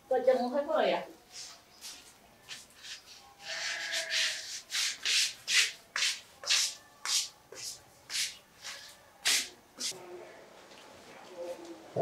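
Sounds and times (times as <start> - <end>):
rhythmic rubbing strokes: 1.3 - 9.9.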